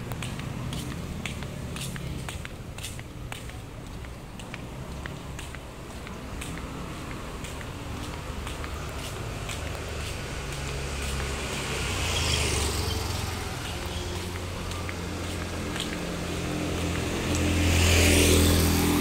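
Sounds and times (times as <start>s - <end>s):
vehicle passing: 0.0s - 19.0s
motor scooter passing: 4.6s - 19.0s.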